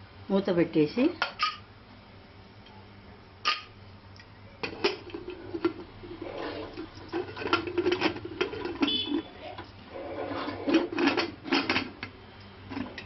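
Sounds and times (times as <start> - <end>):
lid rim scraping against pot: 4.6 - 12.0.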